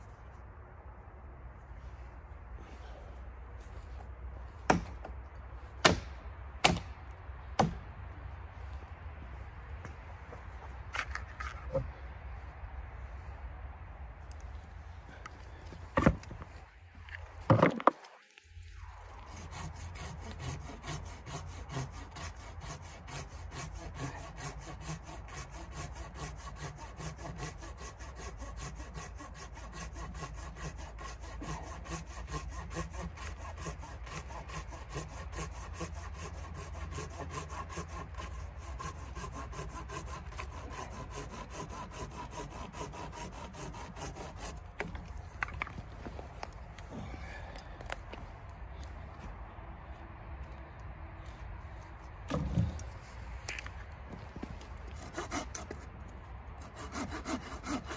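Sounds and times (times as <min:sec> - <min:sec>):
hand saw cutting wood: 0:19.0 - 0:46.5, 0:54.9 - 0:55.9, 0:56.6 - 0:57.9.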